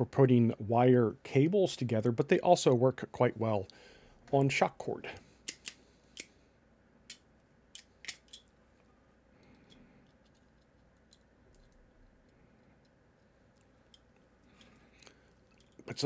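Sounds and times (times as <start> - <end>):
sharp metal clicks: 5.4 - 6.3.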